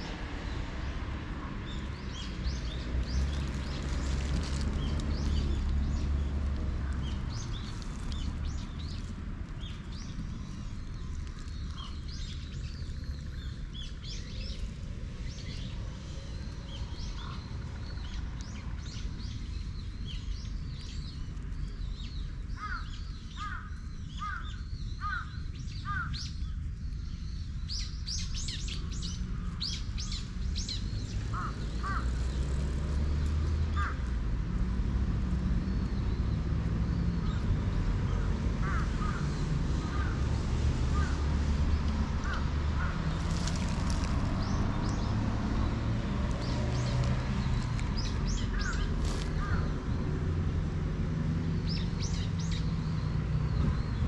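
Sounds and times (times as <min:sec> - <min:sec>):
birds chirping and calling: 0:15.4 - 0:32.5, 0:38.1 - 0:40.2, 0:40.9 - 0:41.2, 0:46.4 - 0:50.3.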